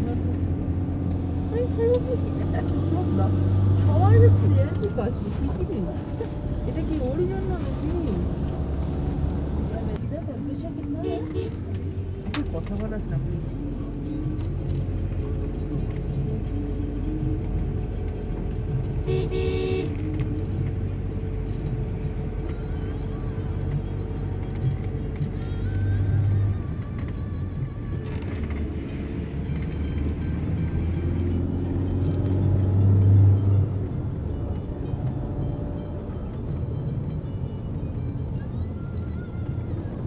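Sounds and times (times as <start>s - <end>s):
car engine rumble: 0.0s - 40.0s
short car horn toot: 19.1s - 20.0s.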